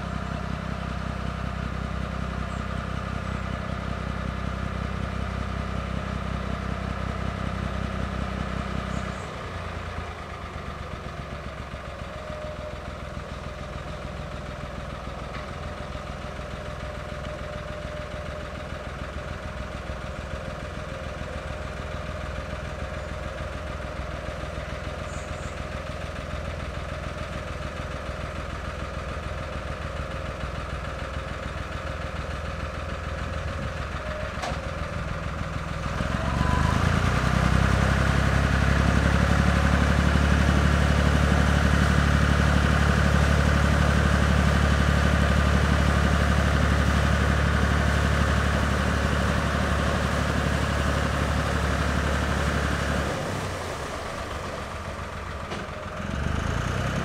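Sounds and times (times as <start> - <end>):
diesel boat engine chugging: 0.0 - 57.0
propeller wash churning water: 46.2 - 56.4.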